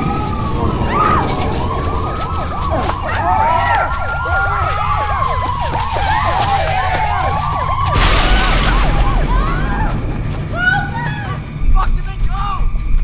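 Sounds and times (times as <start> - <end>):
wailing siren-like tone: 0.0 - 11.8
low rumble: 7.4 - 13.0.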